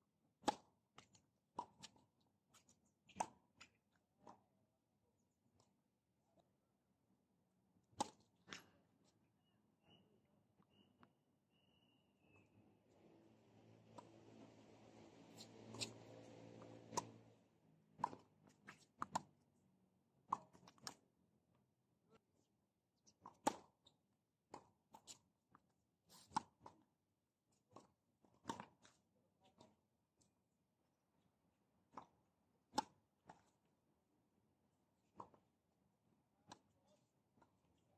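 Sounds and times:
tennis balls struck and bouncing: 0.4s - 4.4s, 7.9s - 8.8s, 13.0s - 19.4s, 20.2s - 21.0s, 23.2s - 23.8s, 26.2s - 26.9s, 27.7s - 29.0s, 31.8s - 33.6s, 35.0s - 35.5s, 36.4s - 37.6s.

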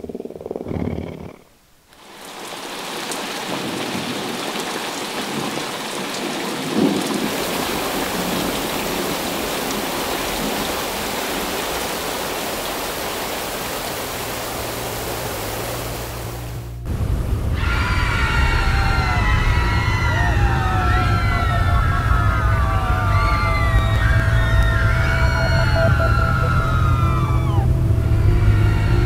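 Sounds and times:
heavy rain: 1.7s - 29.0s
thunderclap: 6.2s - 10.8s
low thunder rumble: 16.6s - 28.2s.

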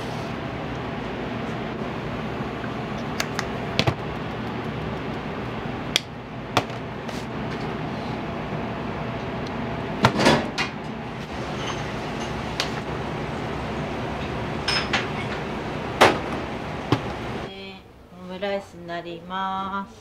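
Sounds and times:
steady background hum: 0.0s - 20.0s
dishes and utensils clinking: 11.4s - 12.5s, 14.2s - 15.5s.

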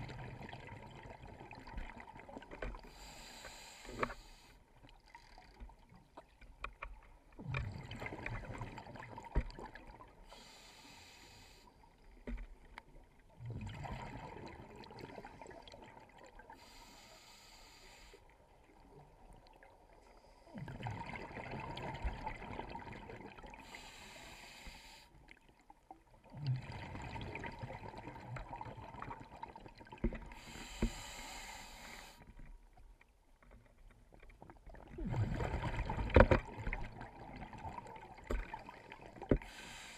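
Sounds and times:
exhaled bubbles gurgling: 0.0s - 3.1s, 7.4s - 10.3s, 13.3s - 16.7s, 20.5s - 24.1s, 26.2s - 31.4s, 34.6s - 39.9s
regulator inhale hiss: 2.8s - 4.6s, 10.3s - 11.8s, 16.5s - 18.3s, 23.6s - 25.2s, 30.3s - 32.3s, 39.4s - 39.9s.

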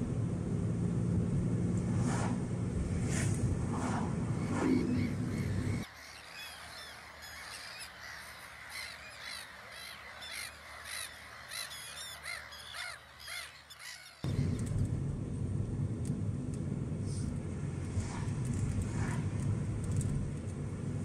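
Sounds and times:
in-car road rumble: 0.0s - 5.9s, 14.2s - 21.0s.

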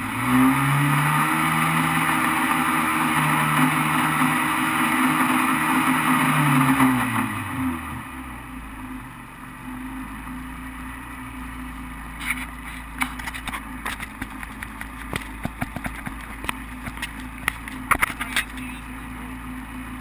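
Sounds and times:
boat motor humming: 12.3s - 19.4s
sharp knocks and clicks: 13.0s - 18.6s.

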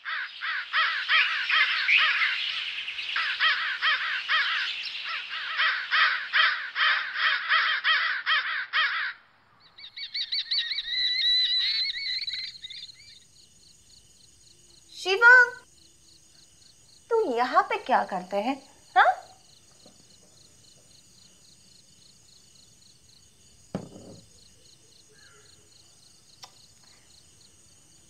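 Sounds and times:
crows cawing: 0.0s - 9.2s, 25.1s - 25.5s.

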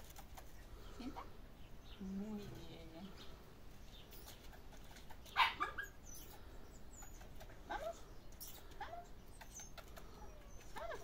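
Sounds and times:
puppy whimpering and yelping: 8.7s - 11.0s.

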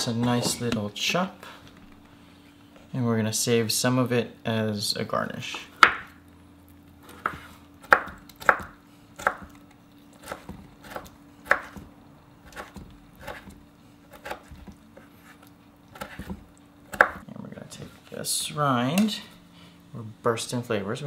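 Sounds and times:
knife chopping on wooden board: 5.8s - 6.1s, 7.1s - 9.6s, 10.2s - 11.9s, 12.5s - 17.2s.

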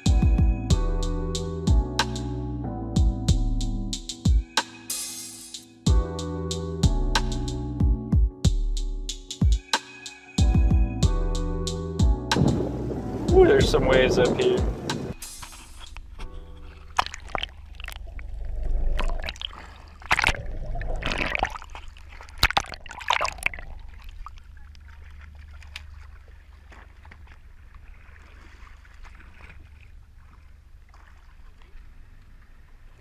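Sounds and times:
low rumble: 11.0s - 22.4s
sea water splashing: 12.3s - 33.0s.

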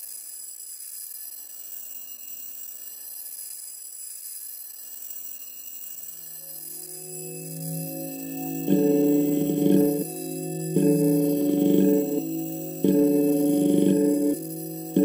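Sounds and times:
sustained chime-like tones: 5.9s - 15.0s
faint grainy texture: 6.4s - 15.0s
low pitched tone: 6.7s - 15.0s.

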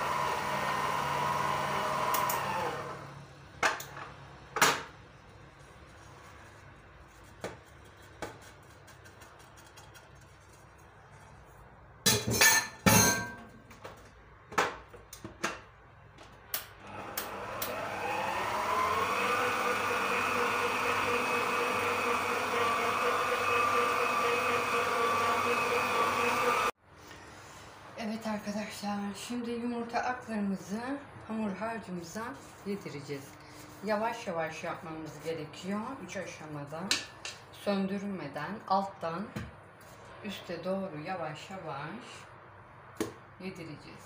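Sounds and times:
stand mixer motor whirring: 0.0s - 3.1s, 16.9s - 26.7s.

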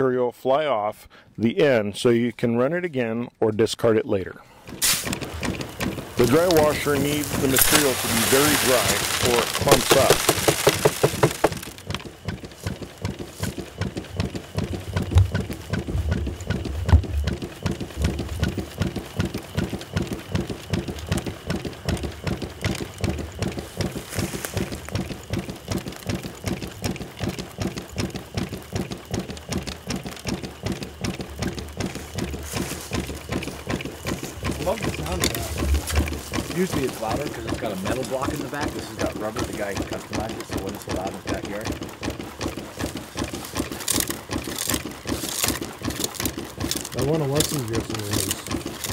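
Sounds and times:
dry washer bellows pulsing: 4.5s - 48.9s
riffle tray rattling: 4.7s - 13.6s, 32.4s - 48.9s.

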